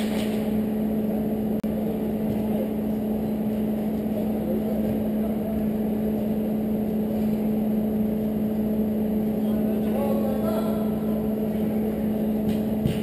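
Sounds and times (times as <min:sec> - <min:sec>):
steady mechanical hum: 0:00.0 - 0:13.0.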